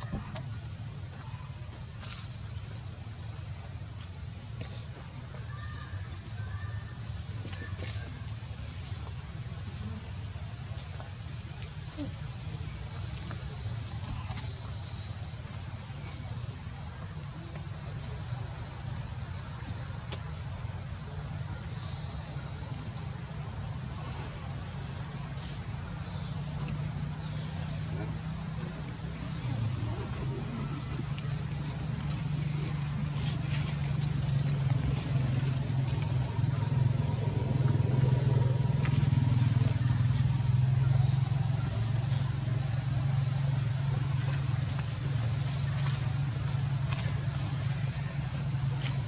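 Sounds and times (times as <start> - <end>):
engine running steadily: 0.0 - 49.0
low rumble: 23.8 - 49.0.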